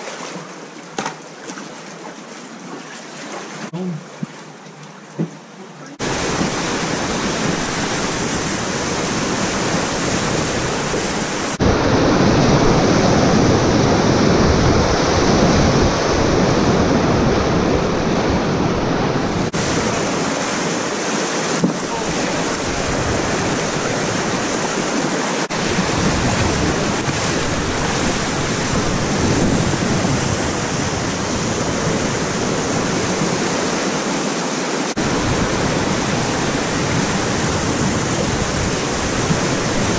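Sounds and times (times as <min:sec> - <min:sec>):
whitewater rapids rushing: 0:05.9 - 0:39.9
wind buffeting microphone: 0:06.0 - 0:20.6, 0:21.5 - 0:33.6, 0:35.0 - 0:39.9.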